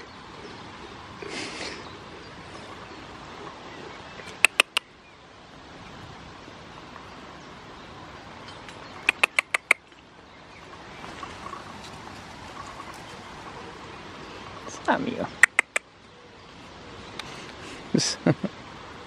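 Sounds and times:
faint outdoor background noise: 0.0s - 19.0s
sharp short clicks: 4.3s - 4.8s, 9.0s - 9.8s, 15.4s - 15.8s.

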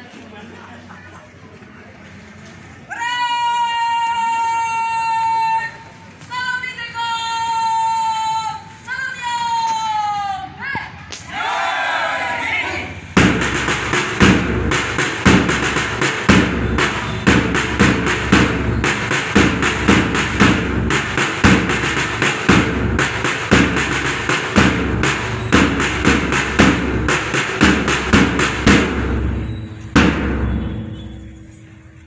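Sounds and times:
loud music with heavy drumbeat: 13.2s - 31.5s.

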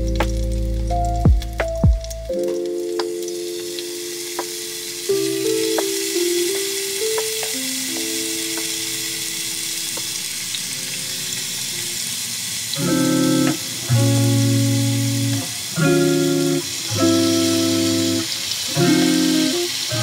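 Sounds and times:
soft background music: 0.0s - 12.1s
steak sizzling in a pan: 0.0s - 20.0s.

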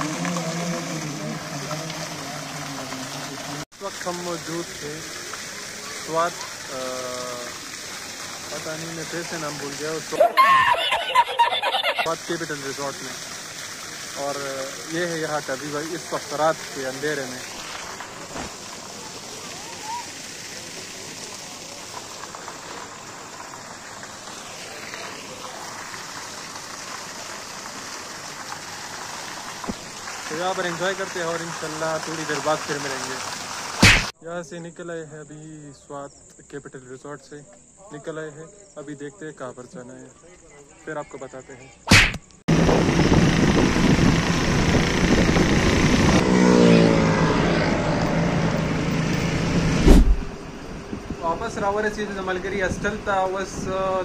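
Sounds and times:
vehicle engine and road noise: 0.0s - 3.7s, 42.0s - 53.0s
waterfall splashing into pool: 0.0s - 34.2s, 41.9s - 50.4s
passing engine drone: 42.5s - 50.8s.

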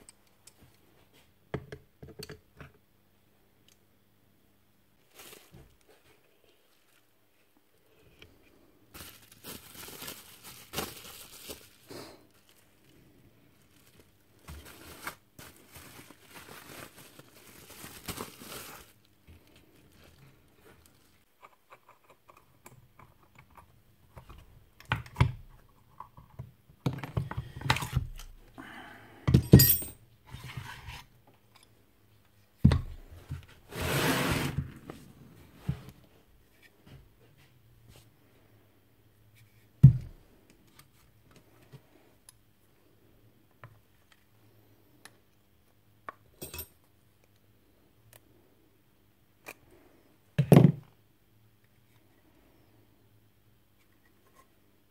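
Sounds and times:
rustling and scraping: 33.0s - 38.3s.

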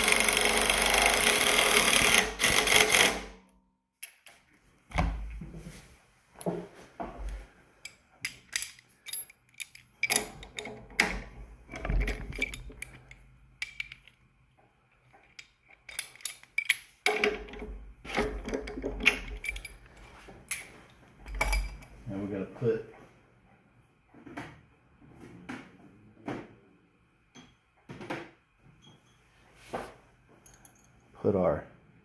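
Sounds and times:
metal hand tools clinking: 7.8s - 10.7s, 15.2s - 17.5s, 18.1s - 19.9s.

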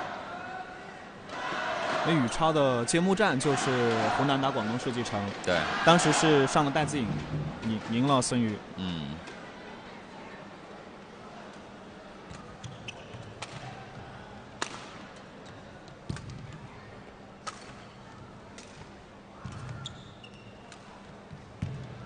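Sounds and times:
shoes squeaking on court: 12.4s - 13.3s, 19.4s - 20.7s.

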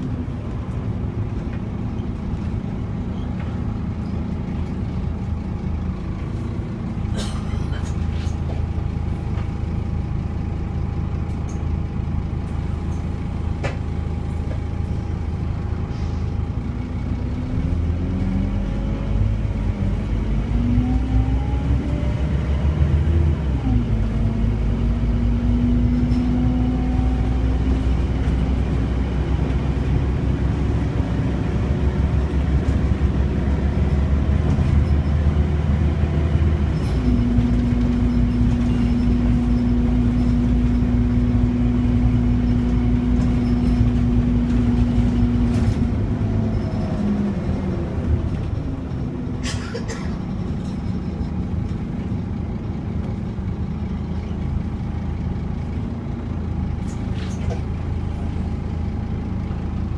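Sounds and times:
bus engine: 0.0s - 59.9s.

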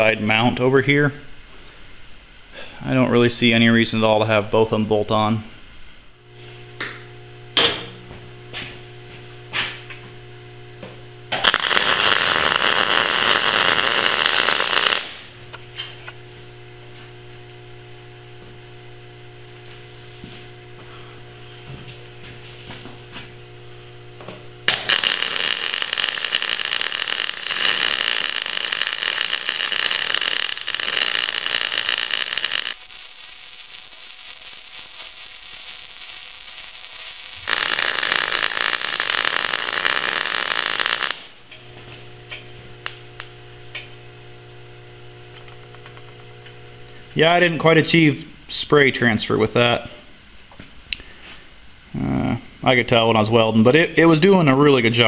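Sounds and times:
welding arc hissing crackle: 11.3s - 15.4s, 24.7s - 41.6s
electrical hum: 31.3s - 47.2s.

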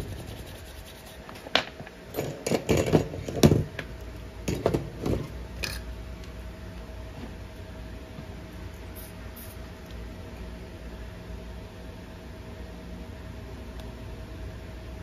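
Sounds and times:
brush scrubbing circuit board: 0.0s - 1.3s
faint steady hum: 0.0s - 15.0s.

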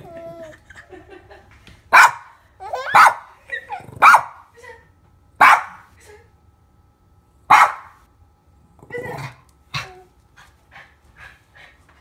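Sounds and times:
dog barking: 1.9s - 2.3s, 2.9s - 3.3s, 4.0s - 4.4s, 5.4s - 5.9s, 7.5s - 8.0s.

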